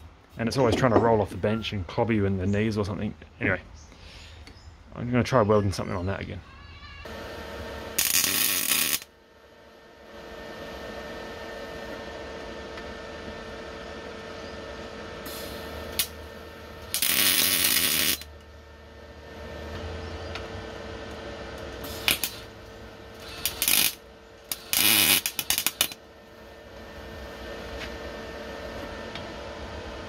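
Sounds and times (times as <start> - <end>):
steady hum: 0.0 - 30.0
welder arc crackling: 7.1 - 9.1, 15.2 - 19.5, 20.3 - 28.0.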